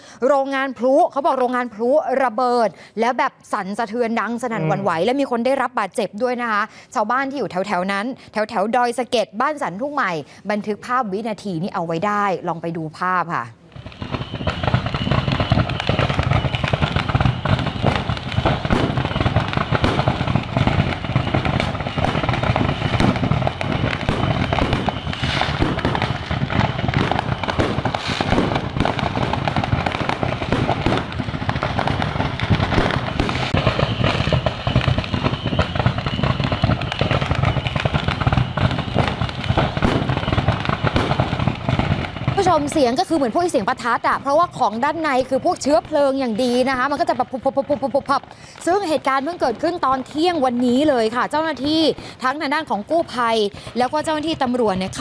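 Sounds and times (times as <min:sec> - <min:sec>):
firecrackers crackling and banging: 0:13.7 - 0:55.0.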